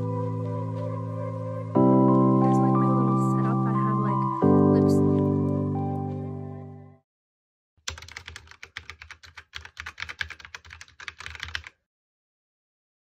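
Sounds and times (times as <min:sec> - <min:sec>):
computer keyboard typing: 0:07.8 - 0:11.8.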